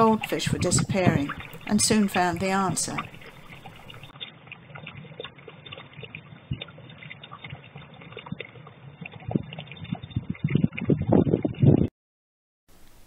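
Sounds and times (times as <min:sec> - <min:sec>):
low hiss: 0:12.7 - 0:13.0.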